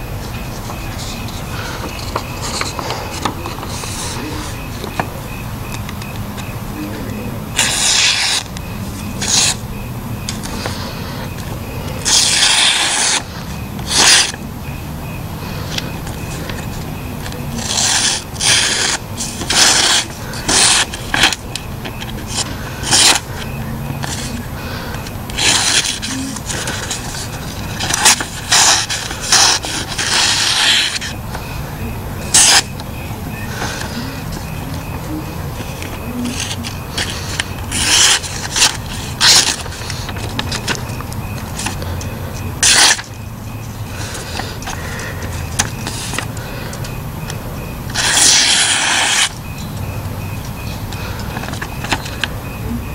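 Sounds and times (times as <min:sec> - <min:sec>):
paper ticks: 0:00.3 - 0:05.1, 0:15.6 - 0:31.6, 0:32.2 - 0:43.1, 0:44.0 - 0:49.9, 0:50.9 - 0:52.4
knife slicing paper: 0:07.6 - 0:08.5, 0:09.2 - 0:09.6, 0:12.0 - 0:14.4, 0:17.6 - 0:21.4, 0:22.3 - 0:24.4, 0:25.4 - 0:31.2, 0:32.3 - 0:32.7, 0:36.2 - 0:40.8, 0:42.6 - 0:43.1, 0:48.0 - 0:49.4.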